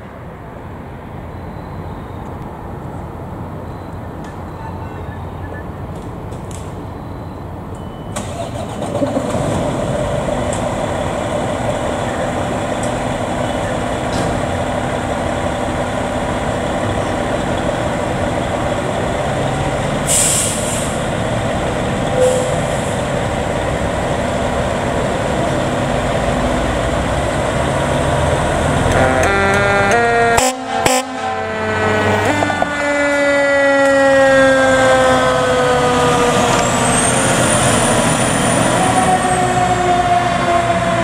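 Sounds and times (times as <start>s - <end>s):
diesel engine running: 3.3s - 30.4s
air brakes hissing: 20.0s - 21.1s, 22.1s - 23.1s.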